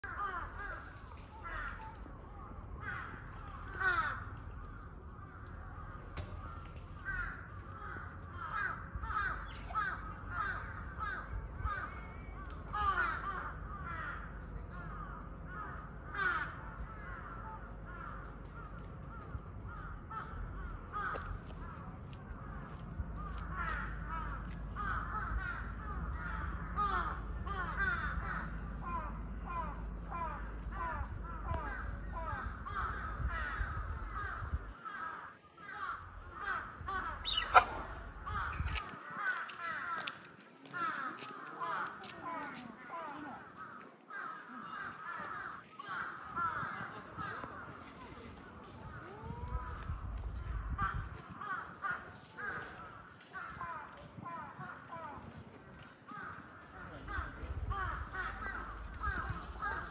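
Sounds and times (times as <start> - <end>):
tapir squeaky cries: 37.2 - 38.6.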